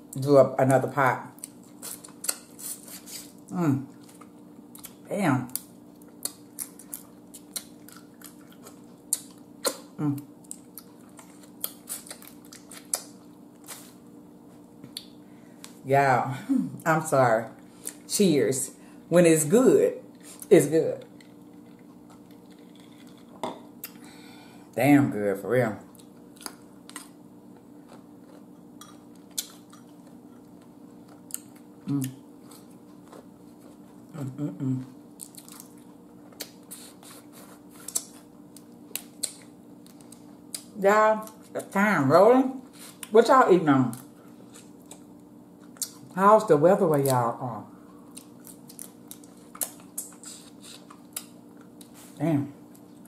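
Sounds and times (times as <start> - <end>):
low room hum: 0.0 - 53.0
wet mouth eating sounds: 1.4 - 14.0, 27.8 - 41.5, 44.0 - 46.1, 47.8 - 52.2
low voice hum: 31.8 - 32.2, 34.0 - 35.0.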